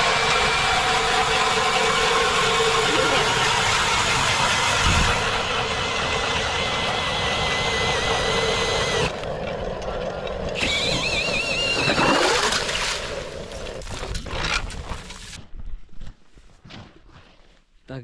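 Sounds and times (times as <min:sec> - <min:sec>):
motor running with wavering whine: 0:00.0 - 0:13.9.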